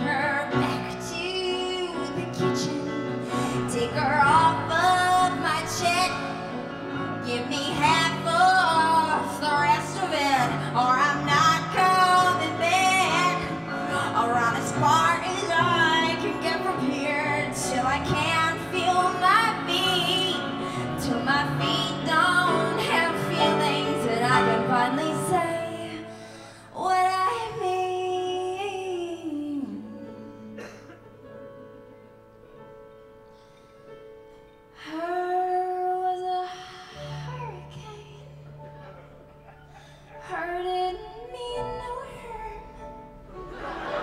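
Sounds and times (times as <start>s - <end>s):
guitar: 0.0s - 26.1s
woman singing into a microphone: 0.0s - 30.9s, 34.8s - 38.4s, 40.2s - 42.9s
piano: 0.0s - 44.0s.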